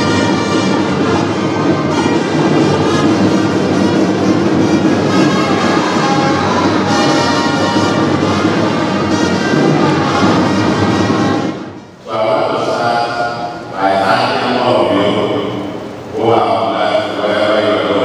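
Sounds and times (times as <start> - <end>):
instrumental music: 0.0 - 12.0.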